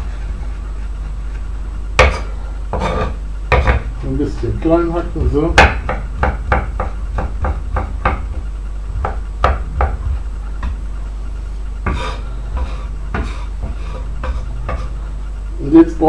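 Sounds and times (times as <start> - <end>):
knife chopping on wooden board: 2.0 - 3.9, 5.5 - 8.4, 9.0 - 10.8, 11.8 - 14.9.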